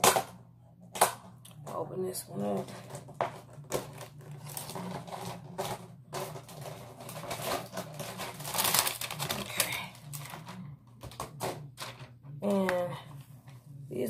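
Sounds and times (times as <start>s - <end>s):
plastic packaging crinkling: 2.6s - 12.1s.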